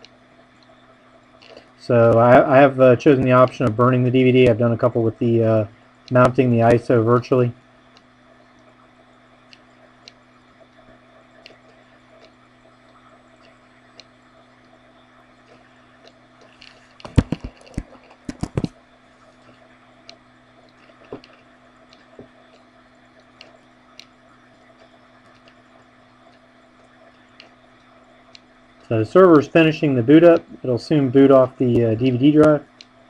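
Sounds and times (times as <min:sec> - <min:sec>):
low steady hum: 0:00.0 - 0:33.0
faint ticks: 0:07.8 - 0:29.0, 0:31.7 - 0:33.0.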